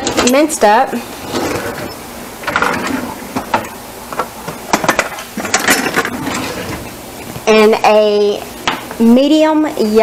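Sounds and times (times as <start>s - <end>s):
metal utensils clattering in drawer: 0.0s - 6.9s.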